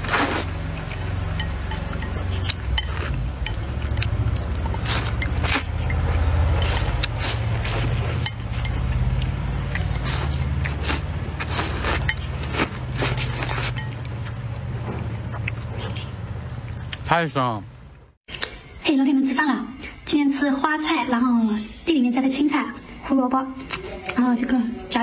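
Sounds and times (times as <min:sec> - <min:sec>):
noodles slurped and chewed: 0:00.0 - 0:15.7
chopsticks tapping bowl: 0:00.9 - 0:07.1, 0:08.2 - 0:10.1, 0:12.0 - 0:14.2.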